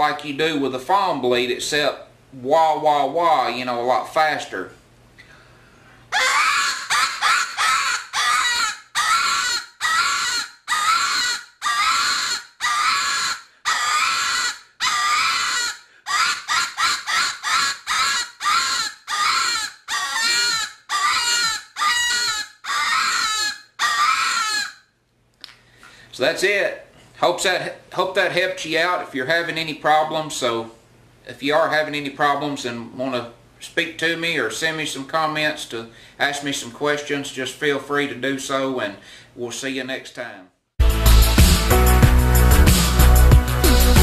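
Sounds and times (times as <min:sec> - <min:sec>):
predator call squalls: 0:06.1 - 0:24.8.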